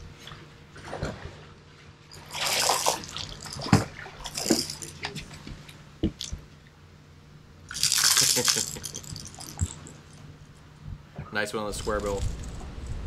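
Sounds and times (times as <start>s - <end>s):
fish splashing at the surface: 2.2s - 4.9s.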